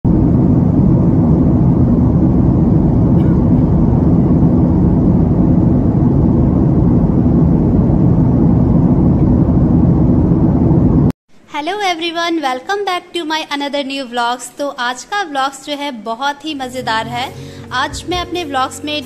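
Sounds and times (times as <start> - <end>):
jet airliner cabin rumble: 0.0 - 11.2.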